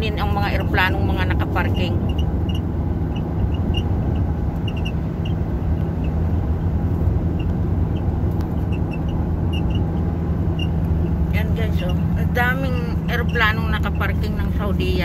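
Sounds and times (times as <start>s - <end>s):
car cabin road noise: 0.0s - 15.0s.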